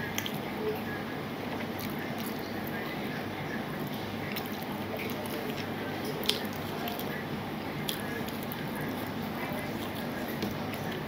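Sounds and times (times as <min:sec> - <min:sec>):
wet squishing and chewing: 0:00.0 - 0:11.0.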